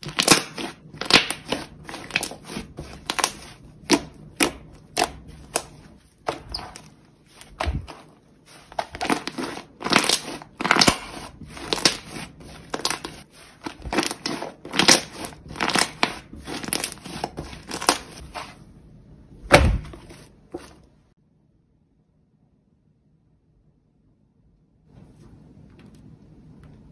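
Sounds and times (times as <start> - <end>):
slime squishing and popping: 0.0 - 18.5.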